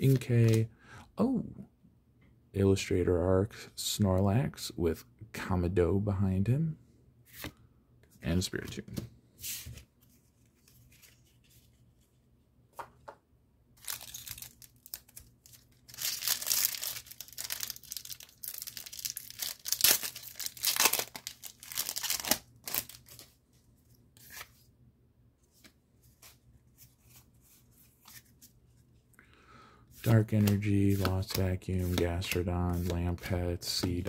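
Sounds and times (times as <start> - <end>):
foil wrapper crinkling and tearing: 13.8 - 23.2.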